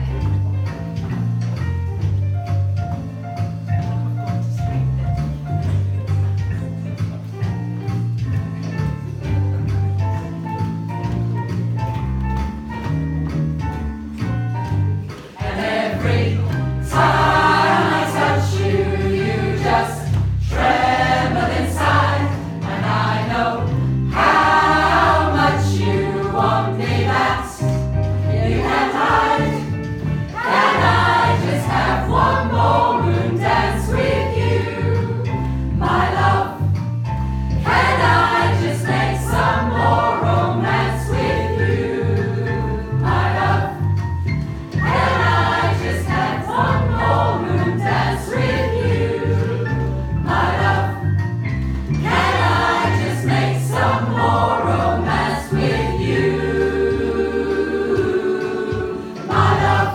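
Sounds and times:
choir singing in parts: 15.2 - 36.8, 37.6 - 44.0, 44.7 - 51.2, 52.0 - 59.9.

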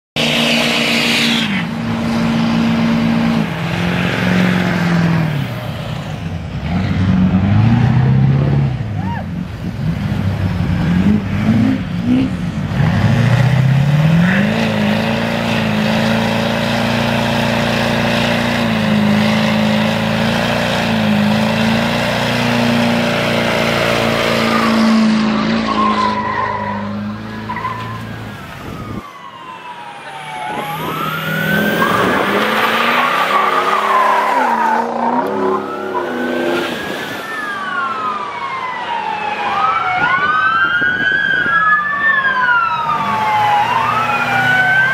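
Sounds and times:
diesel truck engine revving: 0.2 - 29.0, 29.9 - 38.1, 42.0 - 44.9
police siren wailing: 22.6 - 44.9.

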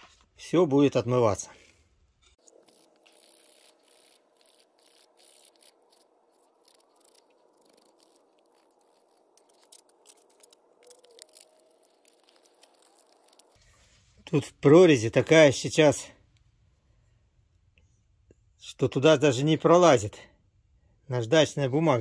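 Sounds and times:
fingers rubbing metal part: 2.2 - 13.6
sandpaper scratching metal: 2.5 - 13.6.

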